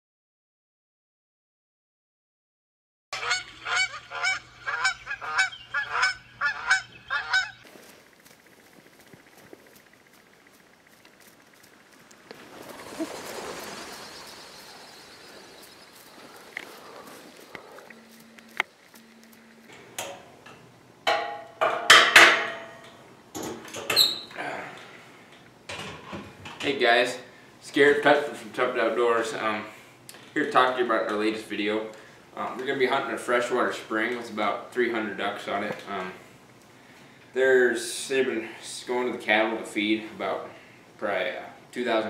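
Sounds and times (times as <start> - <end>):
geese honking: 3.2 - 7.7, 11.6 - 18.6
knocks and metallic clanks: 19.7 - 24.0.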